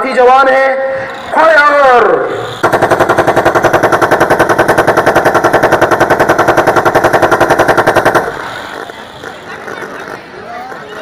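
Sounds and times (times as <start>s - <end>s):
machine-gun fire: 2.5s - 9.1s.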